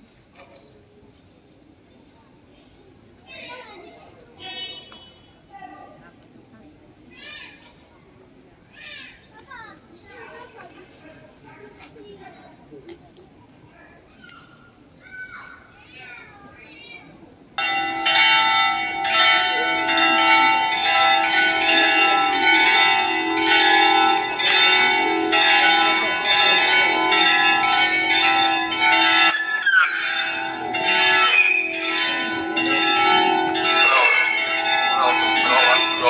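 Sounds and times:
church bells pealing: 0:17.6 - 0:36.0.

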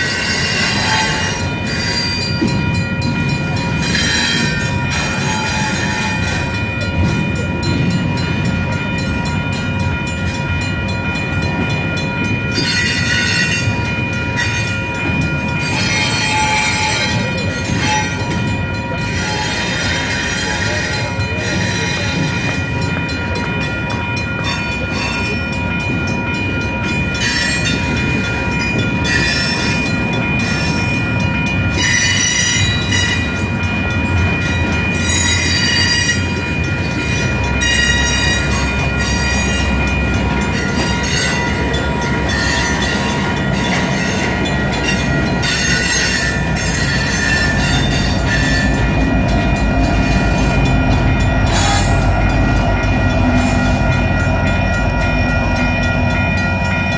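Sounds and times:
high squeal of wheels on rail: 0:00.0 - 0:02.8, 0:03.5 - 0:07.2, 0:12.5 - 0:23.0, 0:26.8 - 0:31.2, 0:31.8 - 0:33.6, 0:34.2 - 0:56.2
diesel locomotive rumble: 0:00.0 - 0:56.9
train wheels clacking: 0:00.0 - 0:56.9.

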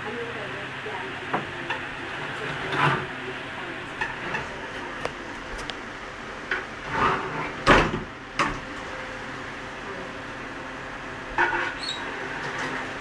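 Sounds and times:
wooden doors sliding: 0:06.6 - 0:08.7.

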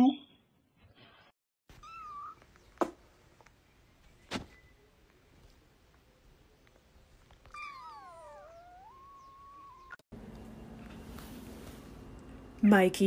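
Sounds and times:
cat meowing: 0:01.8 - 0:02.4, 0:07.4 - 0:10.0.

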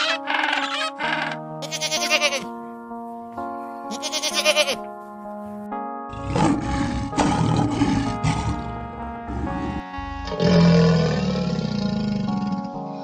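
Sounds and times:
goat bleating: 0:00.0 - 0:02.5, 0:03.9 - 0:04.9
background music: 0:00.0 - 0:13.0
lion roaring: 0:06.1 - 0:12.8.

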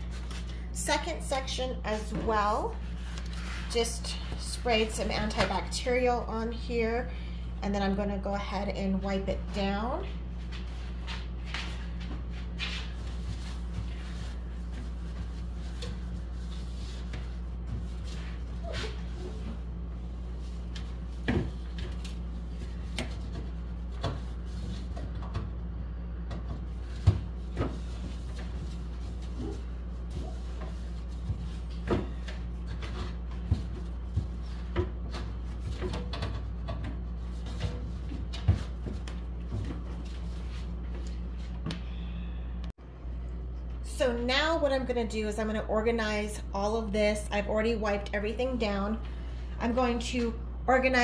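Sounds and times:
steady low hum: 0:00.0 - 0:51.0
paper towel wiping glass shelf: 0:26.8 - 0:34.8.

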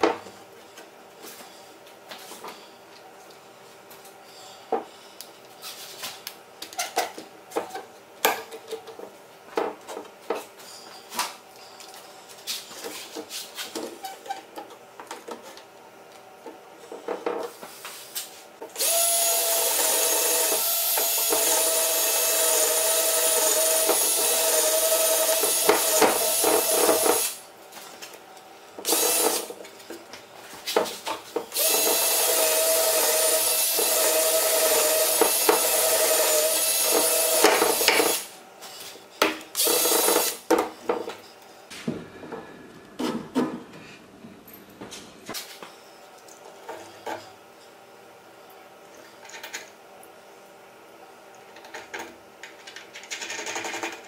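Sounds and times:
power drill running: 0:18.8 - 0:27.4, 0:28.8 - 0:29.5, 0:31.6 - 0:38.3, 0:39.6 - 0:40.4.

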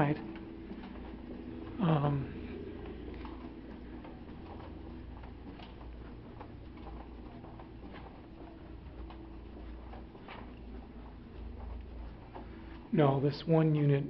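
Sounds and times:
footsteps on carpet: 0:00.0 - 0:13.8
low steady hum: 0:00.0 - 0:14.0.

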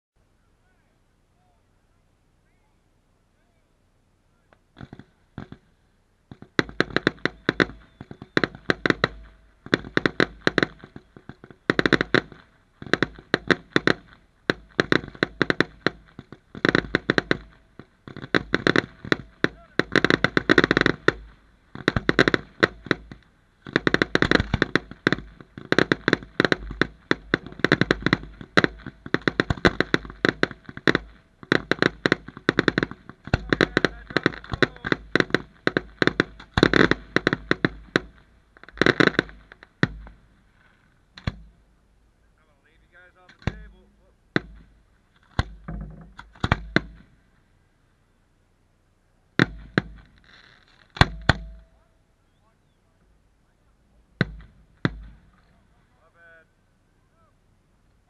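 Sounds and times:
fireworks bangs and crackles: 0:04.7 - 0:05.7, 0:06.3 - 0:41.6, 0:42.7 - 0:47.2, 0:49.4 - 0:51.8, 0:54.2 - 0:55.8.

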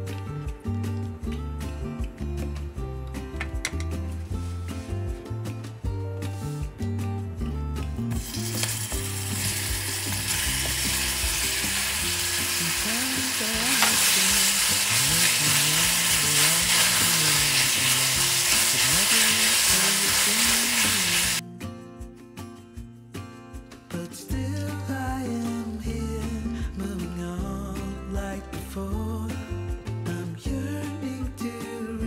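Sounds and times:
background music: 0:00.0 - 0:32.0
food sizzling in a pan: 0:08.2 - 0:21.4
stirring in a pan: 0:08.2 - 0:21.4.

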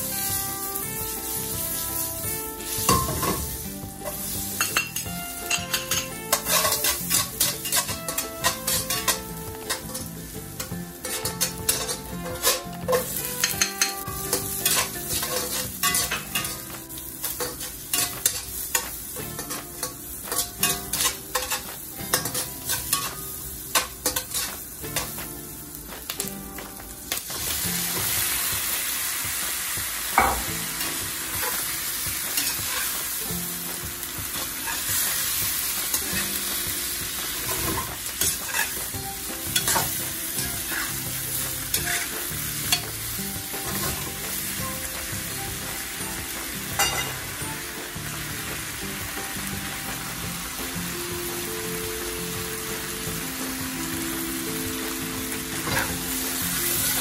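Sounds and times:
garlic and onion sizzling: 0:00.0 - 0:57.0
spatula scraping a steel wok: 0:04.0 - 0:16.6, 0:17.2 - 0:25.1, 0:37.4 - 0:38.8, 0:39.5 - 0:41.1, 0:41.7 - 0:42.8, 0:55.6 - 0:56.0
chicken frying in hot oil: 0:27.2 - 0:57.0.

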